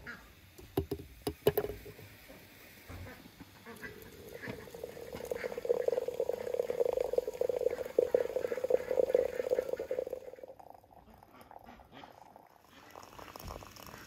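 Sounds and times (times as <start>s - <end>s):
hot water pouring into teapot: 3.6s - 14.0s.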